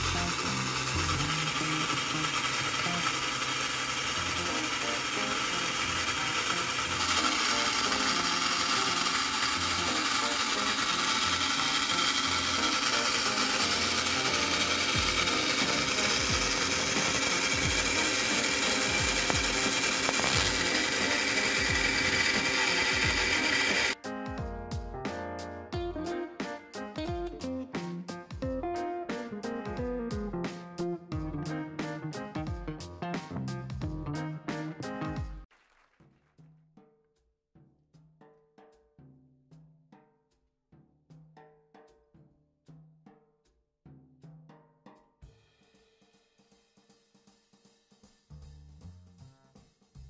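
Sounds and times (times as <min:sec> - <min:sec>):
toy train motor whirring: 0:00.0 - 0:24.0.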